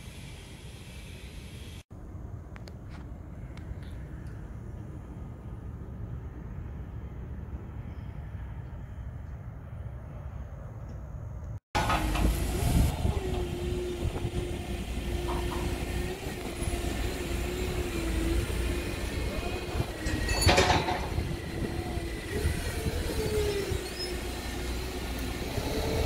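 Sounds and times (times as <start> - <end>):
forklift engine whining: 11.8 - 26.0.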